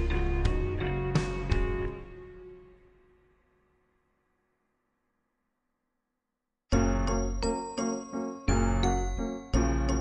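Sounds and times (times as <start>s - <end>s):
background music with heavy bass: 0.0s - 2.8s
bright chiming notes: 6.8s - 10.0s.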